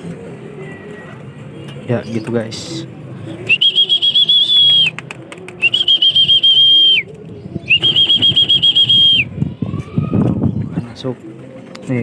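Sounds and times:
person whistling: 3.5s - 5.0s, 5.6s - 7.1s, 7.7s - 9.3s.

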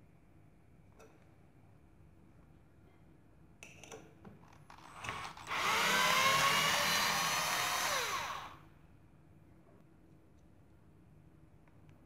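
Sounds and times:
cordless drill motor whining: 4.9s - 8.6s.

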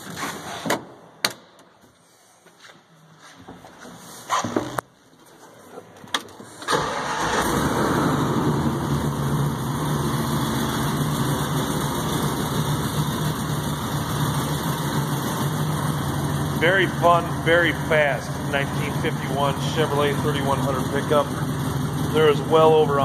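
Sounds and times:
engine starting and idling: 6.6s - 23.0s.

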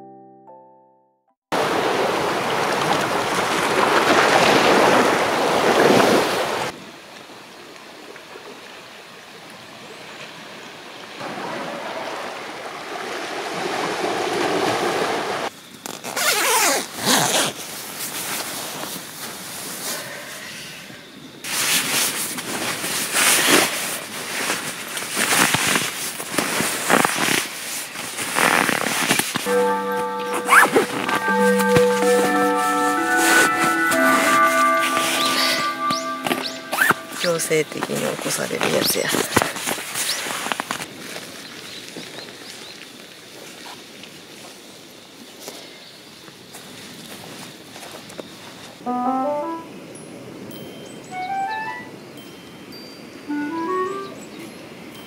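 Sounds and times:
chime melody: 0.0s - 1.2s, 29.5s - 38.3s, 48.9s - 55.0s
waves washing on rocky shore: 1.6s - 6.8s, 11.2s - 15.5s
sleeping bag rustling: 15.8s - 20.0s, 21.5s - 42.6s.

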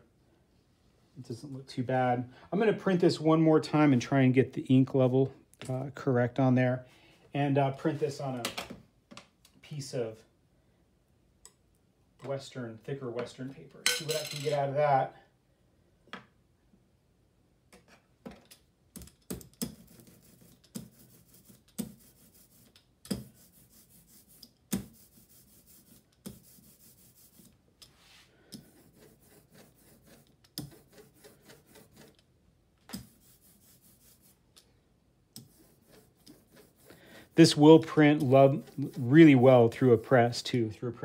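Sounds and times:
rubber roller rolling through ink: 19.6s - 27.6s, 28.6s - 32.2s, 35.4s - 40.5s.

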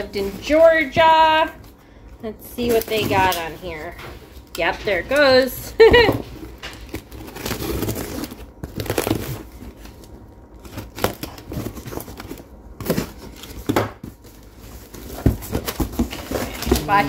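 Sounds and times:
packaging rustling and tearing: 6.2s - 17.0s.

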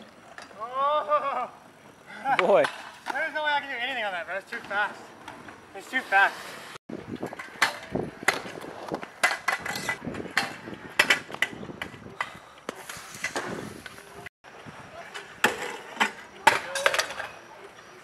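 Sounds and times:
scooter wheels rolling on concrete: 0.0s - 18.0s
scooter deck clacking: 7.1s - 13.6s.

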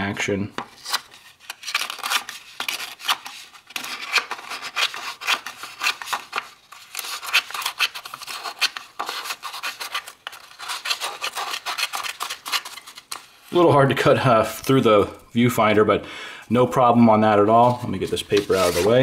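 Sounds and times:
scissors snipping paper: 0.8s - 13.2s.

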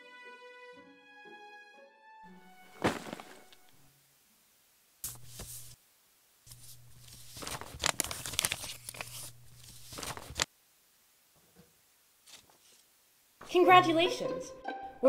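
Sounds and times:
envelope tearing open: 2.7s - 3.7s, 6.5s - 10.5s
paper rustling: 2.7s - 3.7s, 5.0s - 5.8s, 6.5s - 10.5s, 12.2s - 12.9s.

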